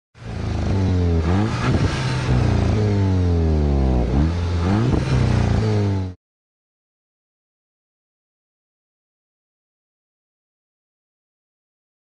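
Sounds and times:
engine revving: 0.2s - 6.2s.

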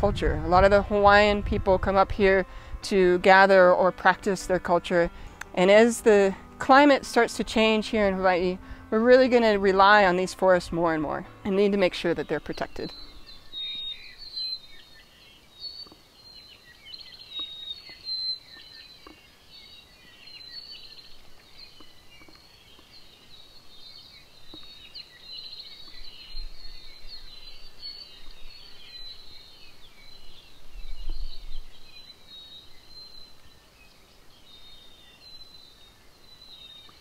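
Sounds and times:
low rumbles: 0.0s - 13.6s
birds chirping and whistling: 6.8s - 37.0s.

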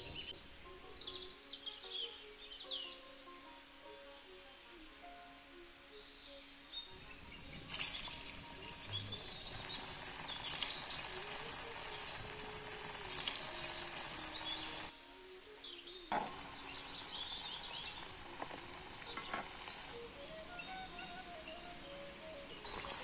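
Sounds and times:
hot oil sizzling and crackling: 7.0s - 14.9s, 16.1s - 20.1s, 22.6s - 23.0s.

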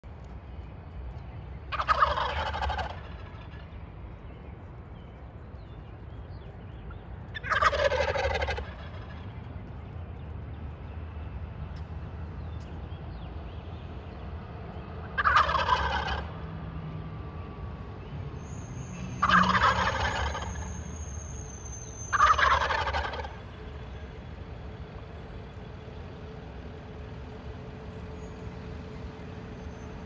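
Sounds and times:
turkeys gobbling: 1.7s - 3.7s, 7.3s - 9.3s, 15.1s - 16.4s, 19.2s - 20.7s, 22.1s - 23.5s.

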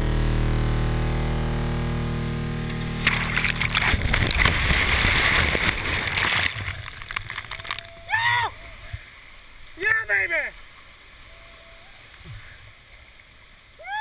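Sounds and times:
electronic soundtrack note: 0.0s - 5.6s
churning bubbling whitewater: 2.9s - 12.9s.

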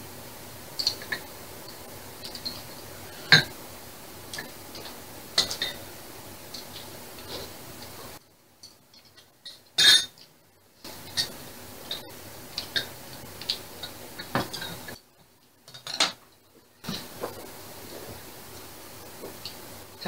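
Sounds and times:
utensils clinking on bowls: 4.4s - 5.8s, 8.6s - 10.2s.

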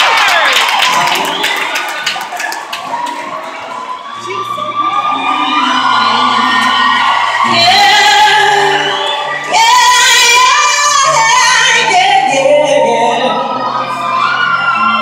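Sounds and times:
woman singing: 5.1s - 13.6s.

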